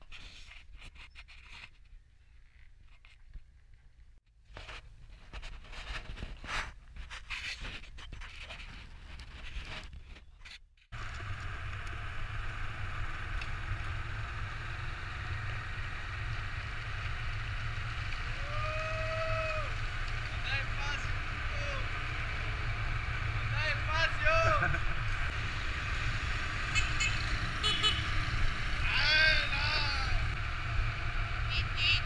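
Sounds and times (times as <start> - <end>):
handling rustling and scraping: 0.0 - 10.9
road noise: 6.5 - 32.0
car engine rumble: 10.9 - 32.0
person shouting: 18.3 - 19.8, 23.7 - 24.7, 28.8 - 30.3.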